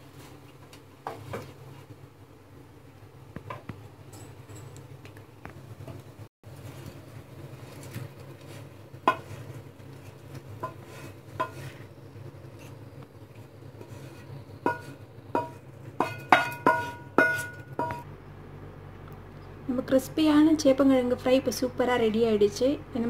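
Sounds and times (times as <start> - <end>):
steady low hum: 1.6 - 23.0
spatula knocking on frying pan: 14.6 - 18.0.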